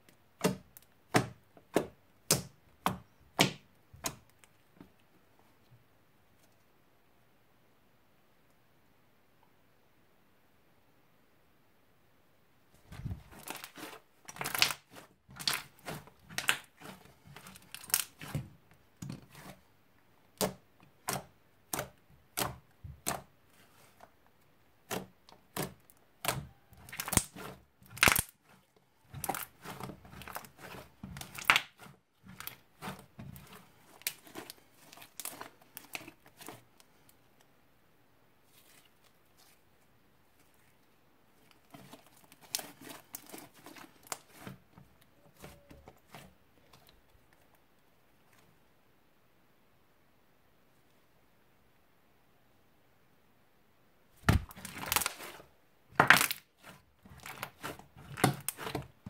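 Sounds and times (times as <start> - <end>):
slime crackling and squelching: 12.8 - 19.7, 24.8 - 37.3, 38.4 - 47.6, 54.2 - 59.0.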